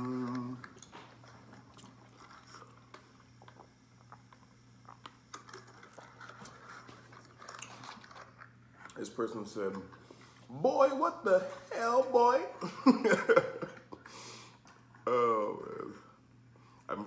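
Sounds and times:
mouth chewing: 0.1 - 9.0.

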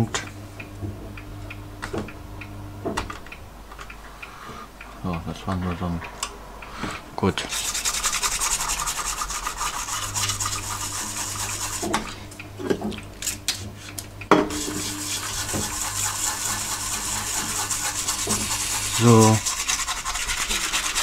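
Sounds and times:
brush scrubbing circuit board: 7.5 - 12.3, 14.5 - 21.0.

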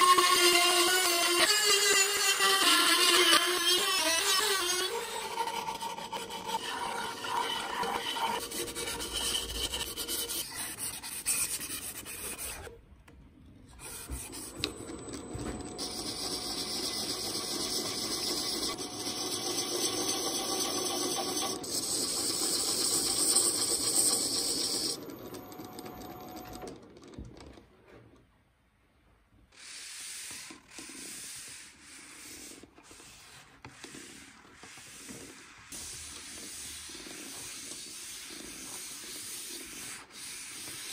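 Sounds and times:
tool hissing on spinning lathe: 15.8 - 25.1
abrasive strip rubbing wood: 29.6 - 40.9
paper towel wiping wood: 29.6 - 40.9.

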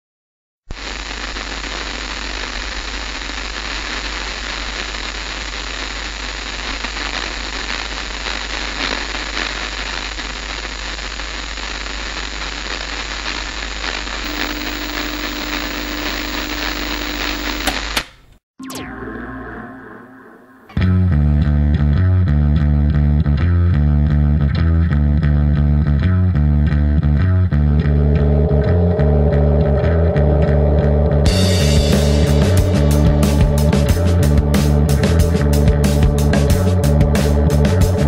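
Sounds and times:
static-like hiss: 0.7 - 18.3.

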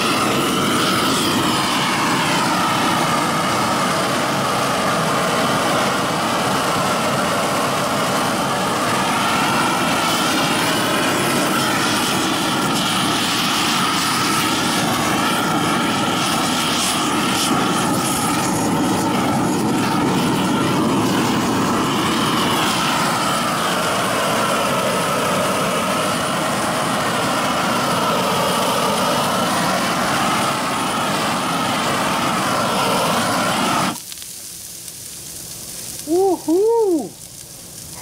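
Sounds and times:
meat sizzling on a grill: 0.0 - 38.0
roaring torch flame: 0.0 - 38.0.

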